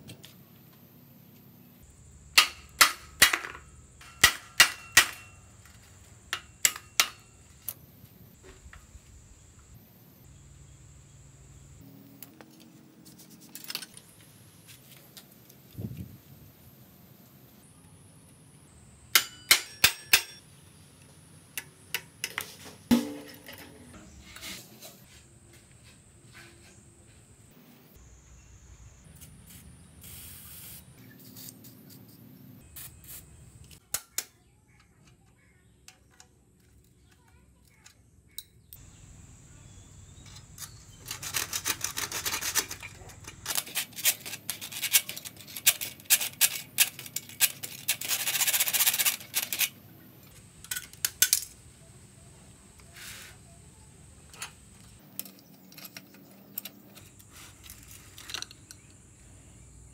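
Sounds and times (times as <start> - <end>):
tools scraping metal: 3.3 - 7.8, 19.2 - 20.4, 40.2 - 49.8
metal clicks and clinks: 55.0 - 59.0.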